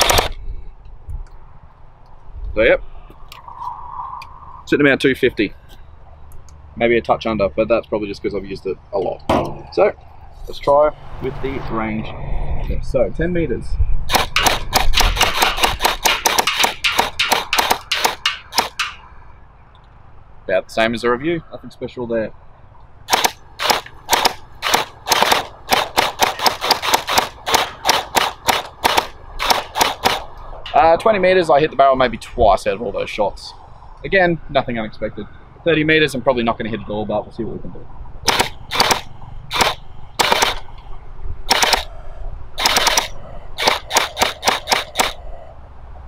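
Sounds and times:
gel blaster firing shots: 0.0s - 0.4s, 14.1s - 19.0s, 23.1s - 30.3s, 38.2s - 40.7s, 41.5s - 41.9s, 42.6s - 45.2s.

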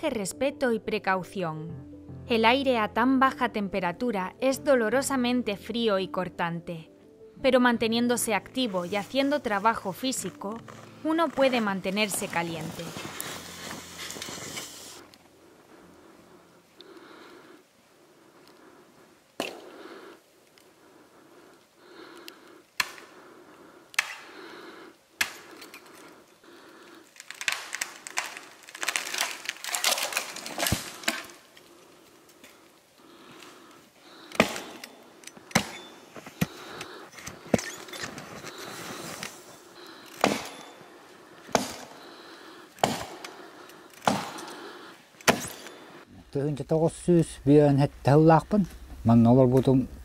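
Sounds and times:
rustling and crunching: 10.6s - 15.3s, 25.4s - 42.1s
axe chopping log: 34.4s - 34.8s, 35.5s - 35.8s, 40.2s - 40.7s, 41.5s - 41.9s, 42.8s - 43.3s, 44.0s - 44.4s, 45.2s - 45.6s.

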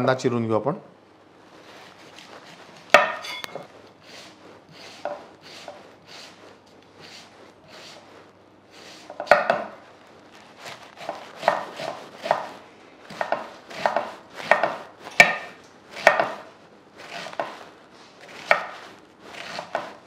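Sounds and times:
knife slicing onion: 10.5s - 20.0s.

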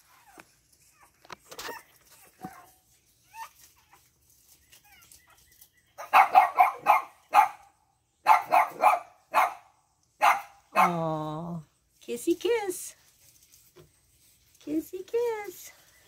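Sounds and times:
puppies yapping: 0.0s - 9.6s.

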